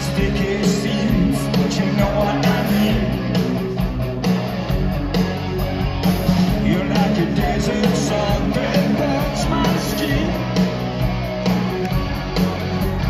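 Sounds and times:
man singing into microphone: 0:00.0 - 0:03.2, 0:06.6 - 0:10.5
live rock band playing: 0:00.0 - 0:13.0.

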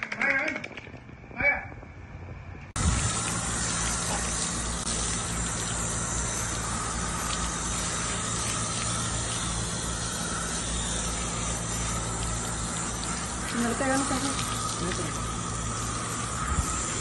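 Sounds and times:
low steady hum: 0:00.8 - 0:17.0
hose spraying water: 0:02.8 - 0:17.0
water splashing on concrete: 0:06.4 - 0:09.8, 0:11.0 - 0:17.0.

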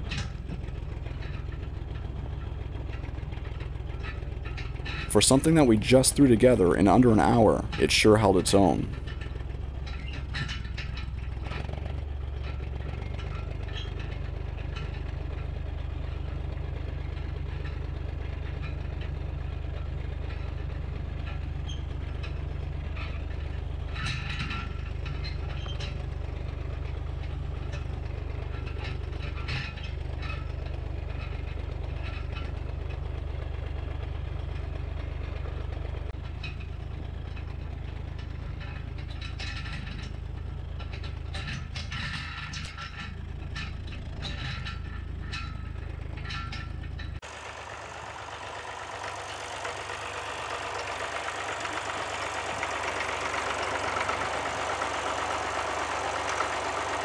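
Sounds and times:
diesel tractor engine running: 0:00.0 - 0:57.0
rattles and clanks: 0:00.0 - 0:57.0.

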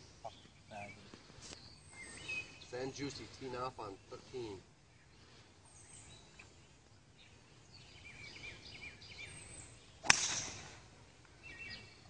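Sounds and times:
small bird chirping: 0:00.2 - 0:04.2
golf club striking ball: 0:10.0 - 0:10.8.

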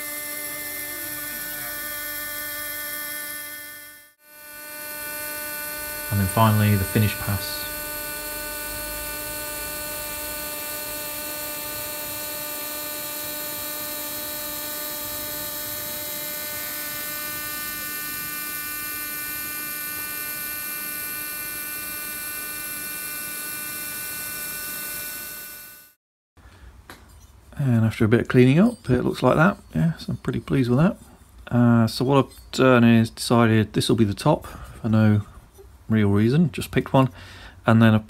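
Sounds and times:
end mill cutting aluminium: 0:00.0 - 0:25.8
cnc spindle whining: 0:00.0 - 0:25.9.

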